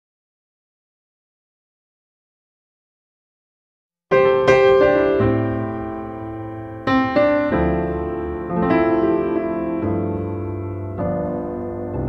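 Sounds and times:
piano playing slow chords: 0:04.1 - 0:12.0.

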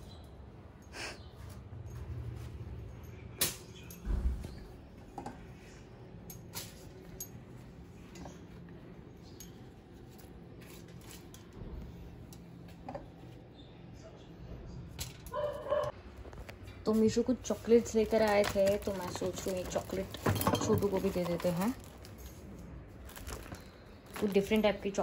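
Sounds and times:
aluminium foil crinkling: 0:16.4 - 0:25.0
kitchen handling clicks and knocks: 0:19.1 - 0:21.3.

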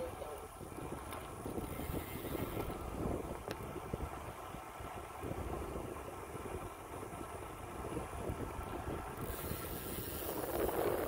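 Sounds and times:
bicycle tyres rolling on asphalt: 0:00.0 - 0:11.0
wind buffeting microphone: 0:00.0 - 0:11.0.

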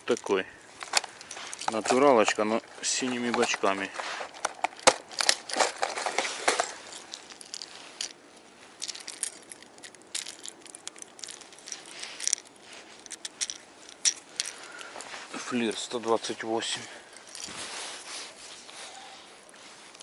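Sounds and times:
clicks and scratching: 0:00.1 - 0:08.2, 0:08.8 - 0:15.1
plastic box clicks and rattling: 0:04.4 - 0:06.8.

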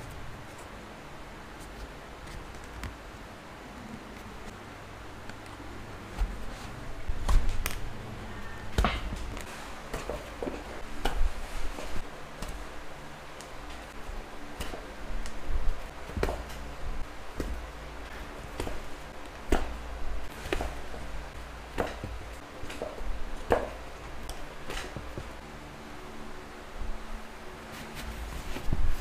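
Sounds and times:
needles clicking and tapping: 0:13.3 - 0:25.4.

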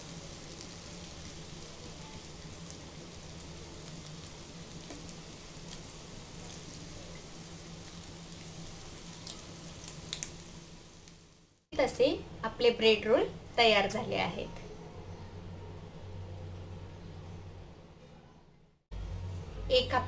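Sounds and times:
oil sizzling: 0:00.0 - 0:12.1.

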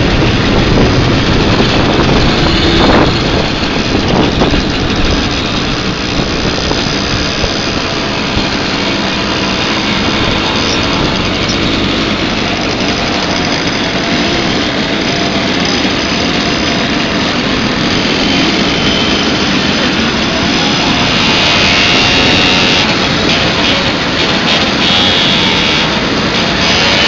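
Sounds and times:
buzz of moped engines: 0:00.0 - 0:27.0.

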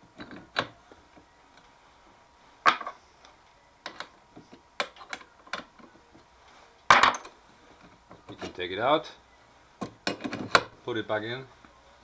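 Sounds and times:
metal tool holder clunk: 0:09.8 - 0:10.7.

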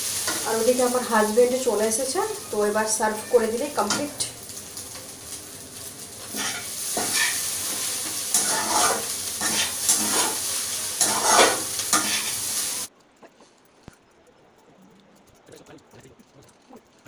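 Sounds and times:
noodles sizzling in a wok: 0:00.0 - 0:12.9
metal spatula scraping: 0:06.2 - 0:12.8.

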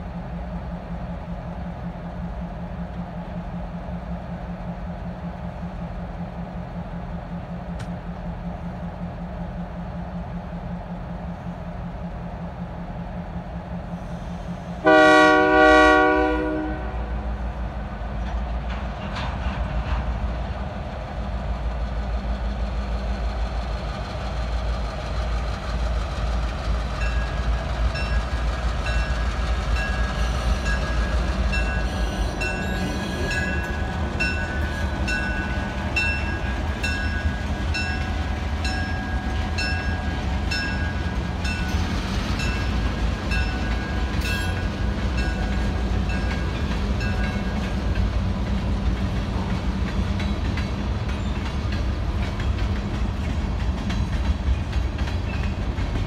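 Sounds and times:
diesel locomotives idling: 0:00.0 - 0:56.0
locomotive horn blasts: 0:14.8 - 0:17.3.

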